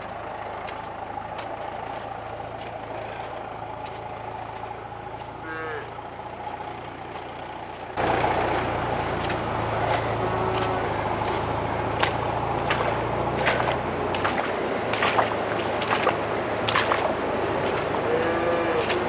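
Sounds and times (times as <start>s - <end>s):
vehicle engine running: 0.0s - 19.0s
cow bawling: 5.4s - 5.9s, 9.7s - 11.2s, 18.0s - 19.0s.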